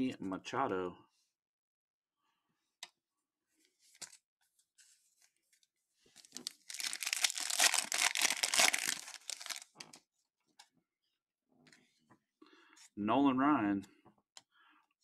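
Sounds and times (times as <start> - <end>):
foil wrapper tearing and crinkling: 6.2 - 10.0.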